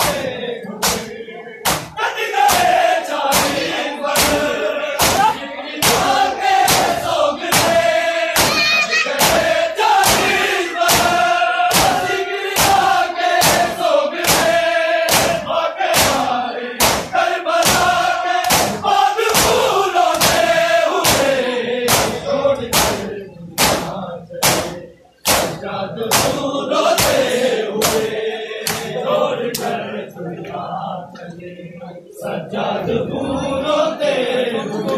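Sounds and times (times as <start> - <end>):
crowd chanting: 0.0 - 34.9
hands slapping chests: 0.8 - 3.6, 4.2 - 6.1, 6.7 - 7.8, 8.4 - 9.4, 10.0 - 21.3, 21.9 - 26.4, 27.0 - 28.9.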